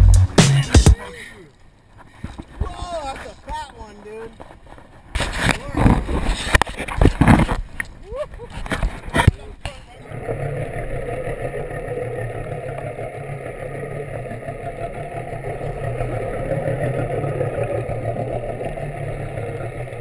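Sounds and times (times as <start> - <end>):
boat engine hum underwater: 10.0 - 20.0.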